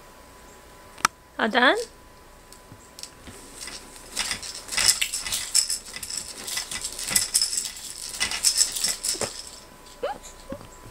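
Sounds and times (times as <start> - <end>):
baby toys jingling and clinking: 3.6 - 10.0.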